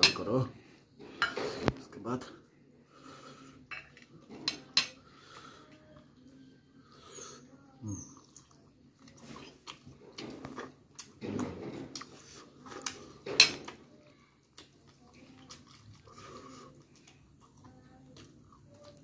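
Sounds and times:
wet chewing and lip-smacking: 0:08.0 - 0:19.0.

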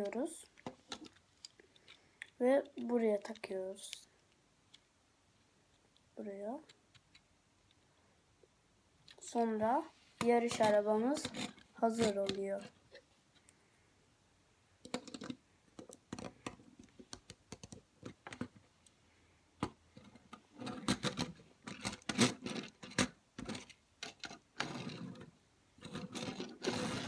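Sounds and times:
plastic bricks clicking: 0:14.8 - 0:18.5.

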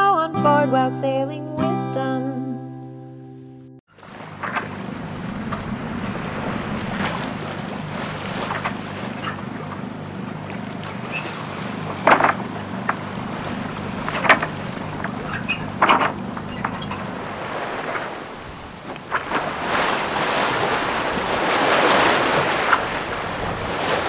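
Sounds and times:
generator hum: 0:03.9 - 0:24.0
water splashing along hull: 0:03.9 - 0:24.0
wave splashes: 0:03.9 - 0:24.0
wind on microphone: 0:04.3 - 0:09.9, 0:12.0 - 0:24.0.

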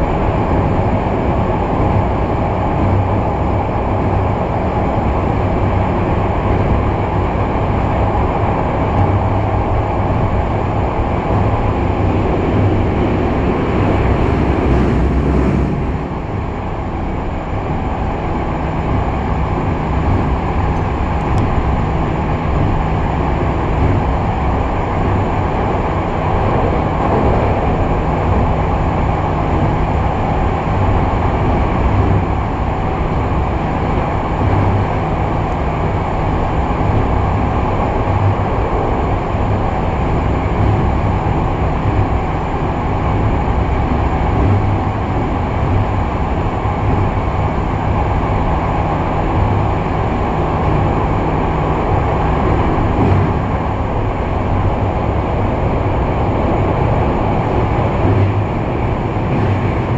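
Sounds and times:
subway train rumbling in tunnel: 0:00.0 - 0:59.9.

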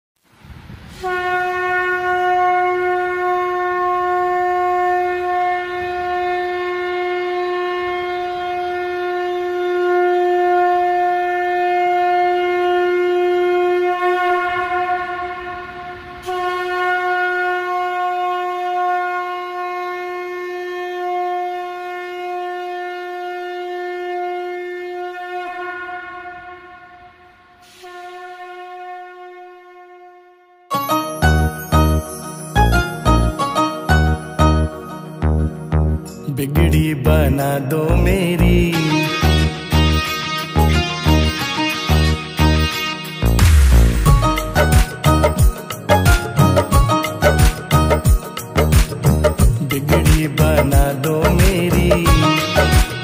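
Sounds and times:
conch shell blasts: 0:01.0 - 0:30.5, 0:42.7 - 0:49.4.

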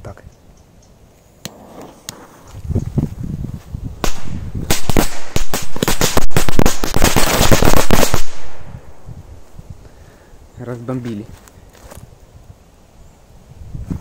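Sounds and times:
firecrackers cracking: 0:04.0 - 0:08.8.

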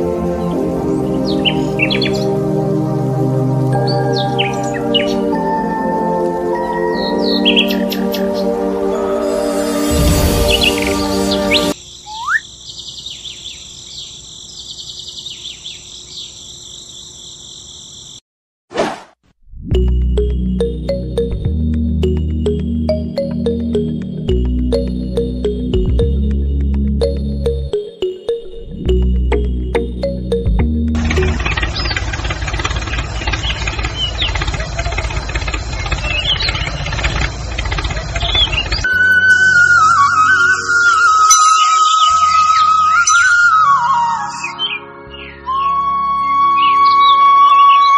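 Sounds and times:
rising whistle: 0:09.1 - 0:12.4, 0:38.2 - 0:44.8, 0:45.4 - 0:47.9
crickets chirping: 0:10.0 - 0:18.2, 0:31.0 - 0:38.9
diesel tractor engine knocking: 0:30.5 - 0:38.8.

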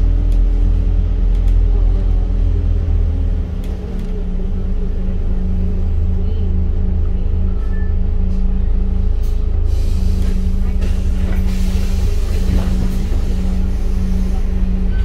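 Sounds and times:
bus diesel engine droning: 0:00.0 - 0:15.0
air brakes hissing: 0:09.2 - 0:15.0.

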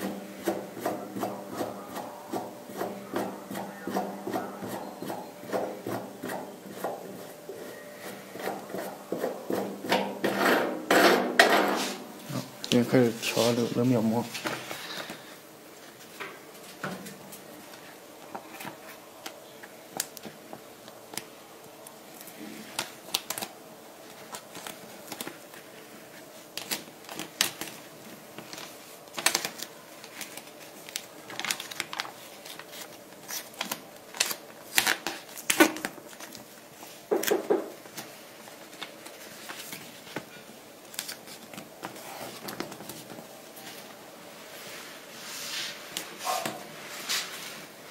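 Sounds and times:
plastic film and paper crinkling: 0:17.6 - 0:45.2.

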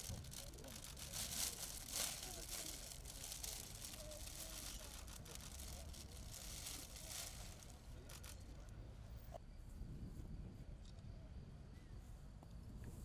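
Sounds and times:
cellophane crinkling and rustling: 0:00.0 - 0:08.6.

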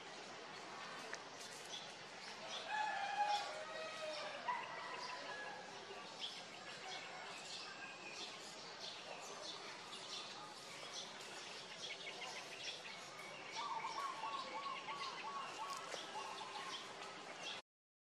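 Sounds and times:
outdoor background noise: 0:00.0 - 0:17.6
birds chirping and calling: 0:06.1 - 0:17.6.

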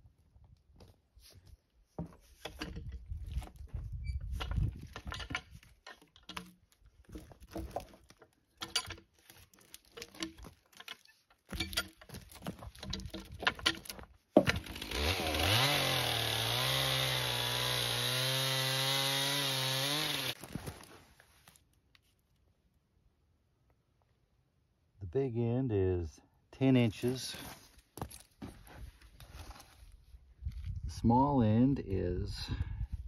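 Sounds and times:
wooden knocks of logs rolling: 0:02.0 - 0:14.9
chainsaw revving and running: 0:14.6 - 0:20.4.

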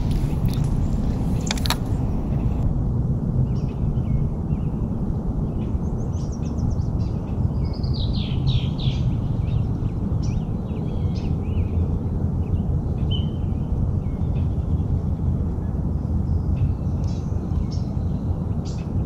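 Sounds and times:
songbirds singing: 0:00.0 - 0:02.6, 0:05.4 - 0:19.0
steady low rumble: 0:00.0 - 0:19.0.

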